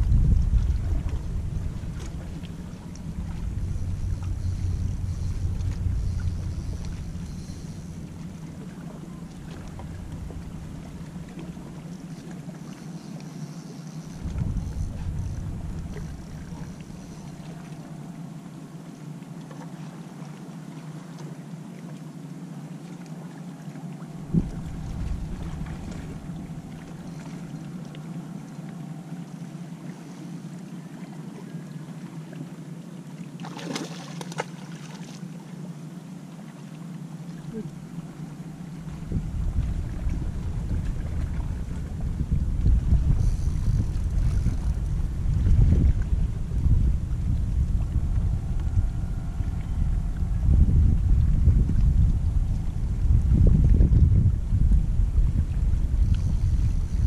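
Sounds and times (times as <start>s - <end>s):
faint hiss of wind and water: 0.0s - 57.0s
low engine drone: 0.0s - 57.0s
steady low hum: 0.0s - 57.0s
fish splashing at the surface: 33.4s - 35.2s.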